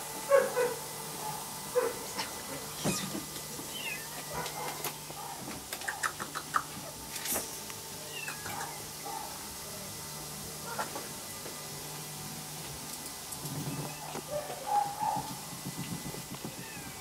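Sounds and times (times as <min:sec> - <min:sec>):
cats and kittens meowing: 0:02.7 - 0:04.4, 0:08.0 - 0:08.9, 0:16.4 - 0:17.0.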